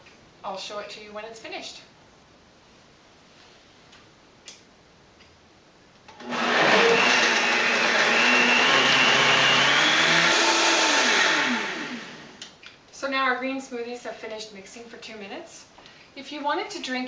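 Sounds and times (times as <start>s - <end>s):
blender running with high whine: 6.2s - 12.4s.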